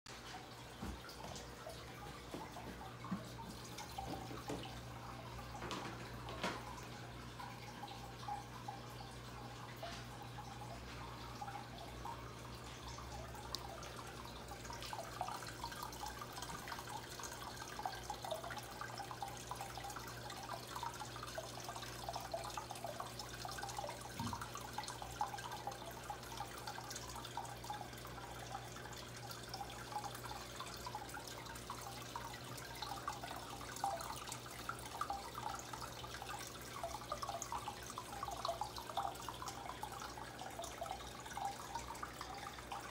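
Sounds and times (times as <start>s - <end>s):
low steady hum: 0.1s - 42.9s
water trickling and bubbling: 0.1s - 42.9s.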